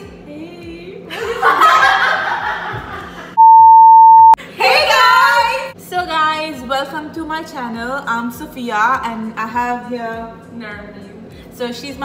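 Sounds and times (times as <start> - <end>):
women laughing and giggling: 1.1 - 3.4
steady test tone beep: 3.4 - 4.4.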